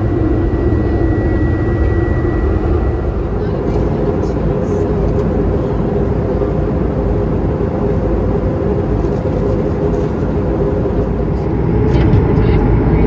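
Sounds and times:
aircraft cabin engine rumble: 0.0s - 13.0s.

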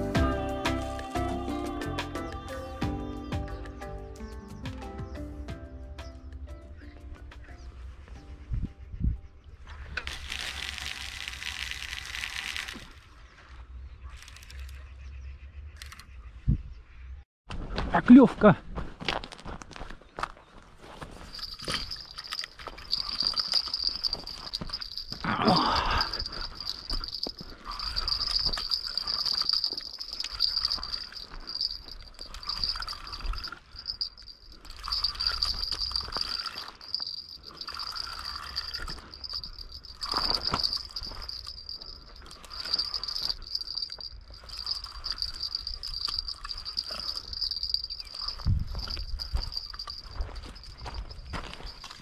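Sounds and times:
crickets trilling: 10.1s - 13.1s, 21.2s - 52.0s.

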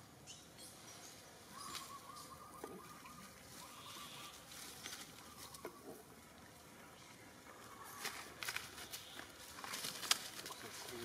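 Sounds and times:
footsteps crackling through dry leaves: 7.8s - 11.0s.

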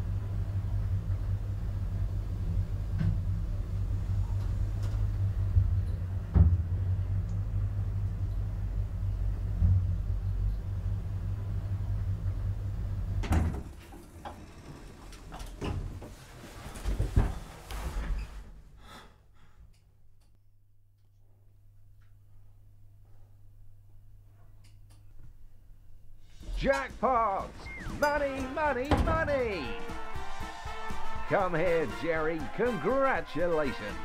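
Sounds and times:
lift humming: 0.0s - 18.3s, 25.9s - 34.0s
lift doors sliding open: 13.1s - 18.4s
shuffling sounds: 16.0s - 18.5s.

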